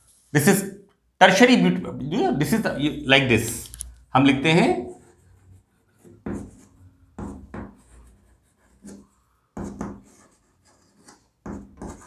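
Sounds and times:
chalk scratching on blackboard: 4.8s - 12.0s.

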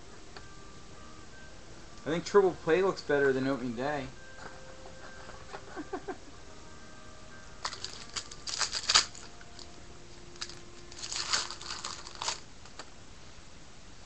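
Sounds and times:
foil wrappers tearing and crinkling: 7.6s - 9.8s, 10.4s - 12.5s.

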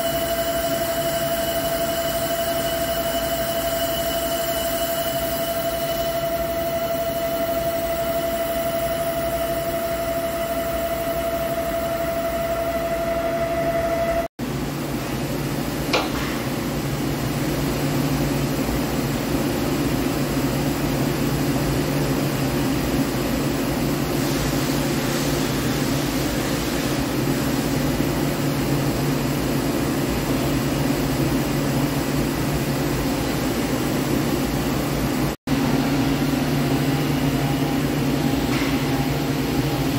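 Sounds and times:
lathe cutting with pitched whine: 0.0s - 14.3s.

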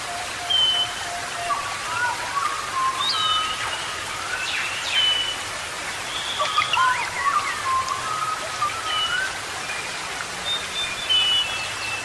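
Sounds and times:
falling water hiss: 0.0s - 12.0s
birds calling: 6.0s - 9.4s.

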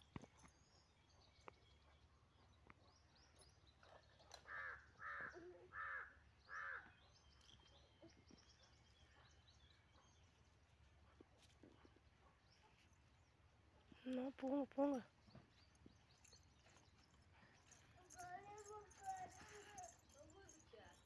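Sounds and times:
faint small bird chirps: 0.0s - 10.5s
crow cawing: 4.5s - 6.9s.

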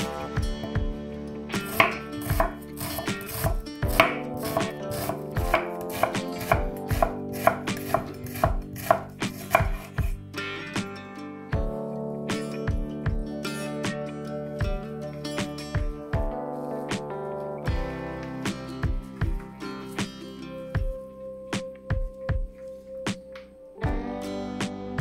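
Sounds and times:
knife chopping on wooden board: 1.7s - 10.1s.

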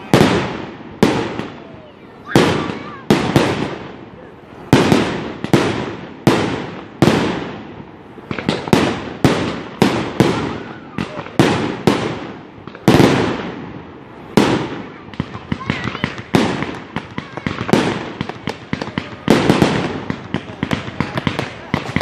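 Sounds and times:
fireworks bangs echoing: 0.0s - 22.0s
small firework pops: 4.7s - 13.6s, 14.3s - 22.0s.

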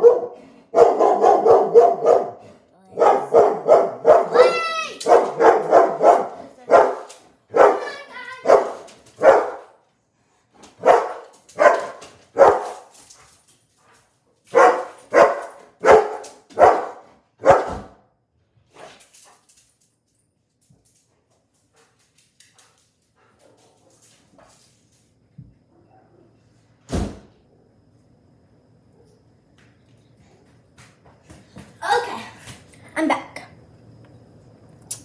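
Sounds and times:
dog barking: 0.0s - 9.8s, 10.8s - 12.9s, 14.5s - 18.0s.

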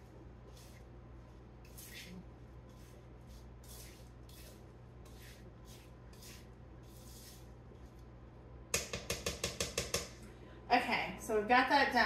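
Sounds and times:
spatula swishing in bowl: 0.0s - 8.1s.

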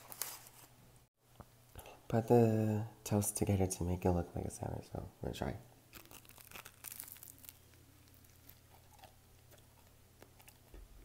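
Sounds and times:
crunching bite of toast: 5.9s - 10.7s
quiet chewing: 7.0s - 11.0s.

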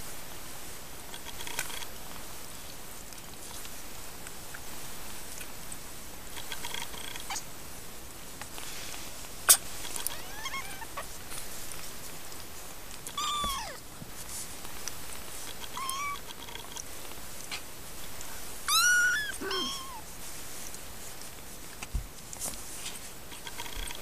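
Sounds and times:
kittens rustling on blanket: 0.5s - 24.0s
kittens mewing: 9.5s - 11.1s, 13.1s - 13.8s, 15.6s - 16.4s, 18.7s - 20.0s.

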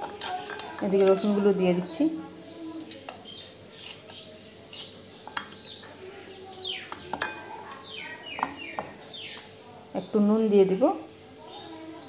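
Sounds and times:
steel kitchenware clinking: 0.0s - 2.0s, 2.9s - 5.7s, 6.9s - 8.9s
small birds chirping: 0.2s - 12.0s.

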